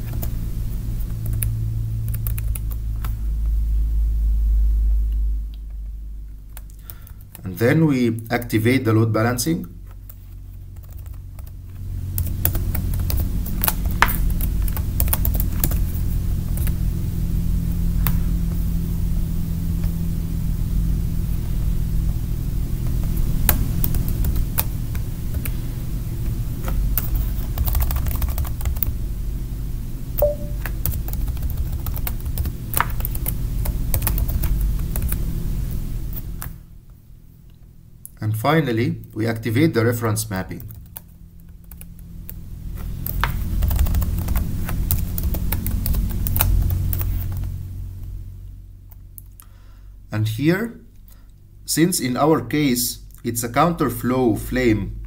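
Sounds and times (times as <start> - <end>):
steady low hum: 0.0 - 55.0
keyboard and mouse clicking: 2.1 - 2.8.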